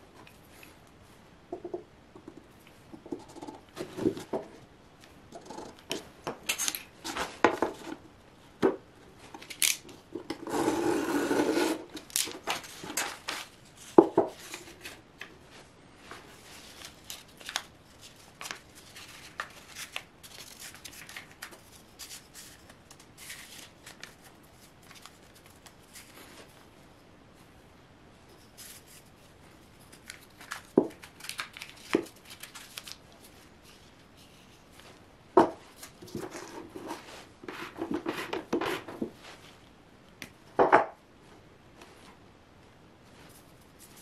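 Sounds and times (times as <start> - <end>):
newspaper rustling and crinkling: 12.0 - 26.5, 30.0 - 35.0.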